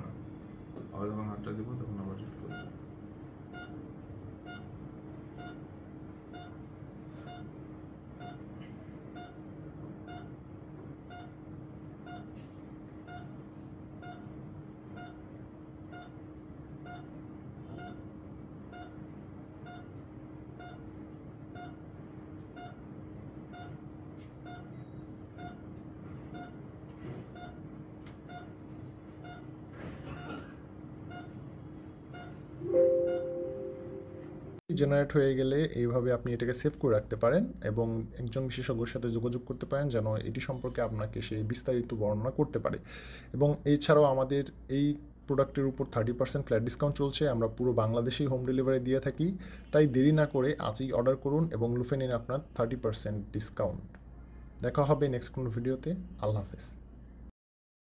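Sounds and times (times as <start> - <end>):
low steady hum: 27.6 - 57.3
short electronic beeps: 32.2 - 34.6.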